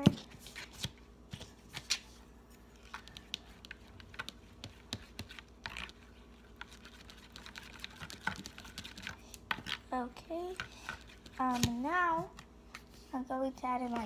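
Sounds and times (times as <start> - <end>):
spoon stirring wet slime: 2.8 - 12.1.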